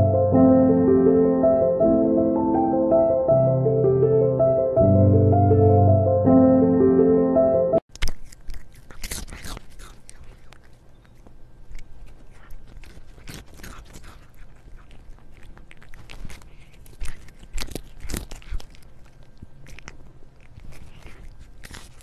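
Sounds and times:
cat chewing with crunches: 7.9 - 22.0.

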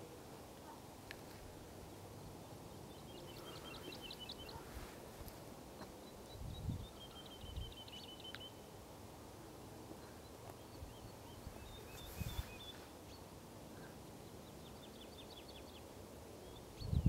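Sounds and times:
bird whistling song: 6.3 - 8.6, 10.9 - 12.9.

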